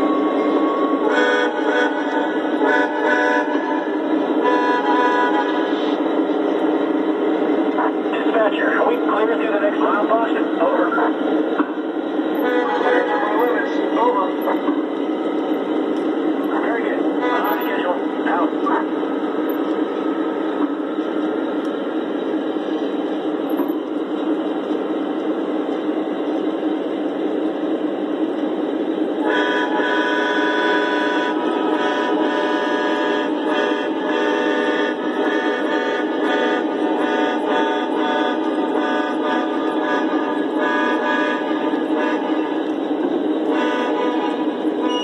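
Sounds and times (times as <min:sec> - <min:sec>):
train horn blasts: 0:00.1 - 0:06.0, 0:12.4 - 0:13.2, 0:17.1 - 0:17.7, 0:29.2 - 0:42.6, 0:43.4 - 0:45.0.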